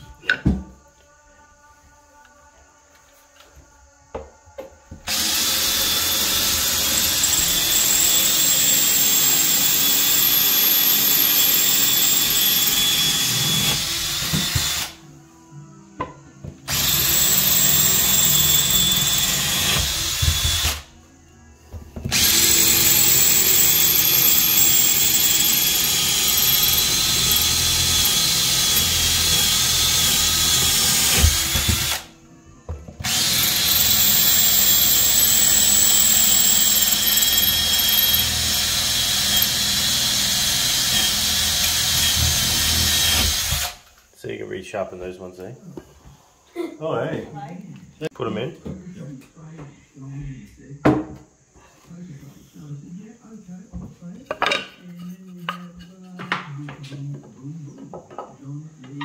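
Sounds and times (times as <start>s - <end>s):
drill boring through ceramic tile: 5.1s - 15.0s, 16.7s - 20.8s, 22.1s - 32.1s, 33.0s - 43.8s.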